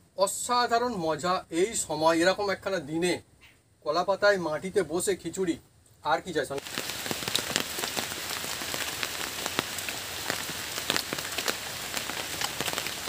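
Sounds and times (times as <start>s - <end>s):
rain falling on leaves: 6.5s - 13.0s.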